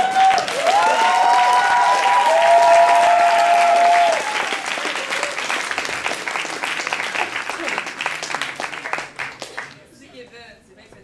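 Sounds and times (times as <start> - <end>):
voices cheering: 0.0 - 5.7
audience applauding: 0.0 - 9.8.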